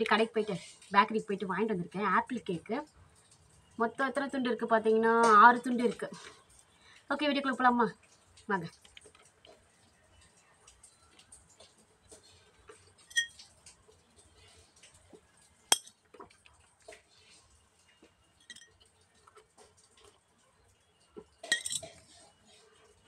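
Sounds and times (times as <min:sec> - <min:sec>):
soft eating sounds: 0:05.6 - 0:07.1, 0:07.9 - 0:23.0.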